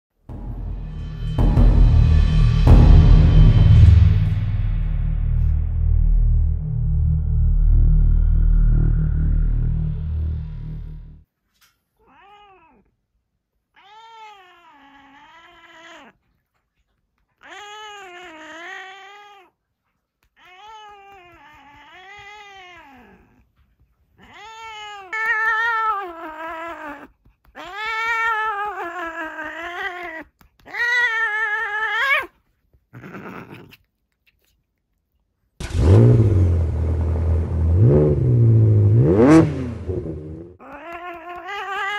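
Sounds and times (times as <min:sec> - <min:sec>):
cat yowling: 0:12.0 - 0:12.9, 0:13.8 - 0:16.2, 0:17.4 - 0:19.6, 0:20.4 - 0:23.5, 0:24.2 - 0:32.4, 0:33.0 - 0:33.8, 0:40.6 - 0:41.9.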